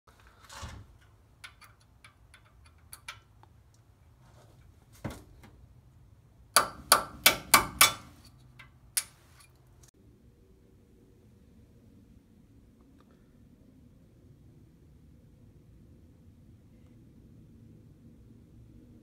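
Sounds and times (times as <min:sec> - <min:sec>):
hammer striking metal punch: 0:06.6 - 0:09.2.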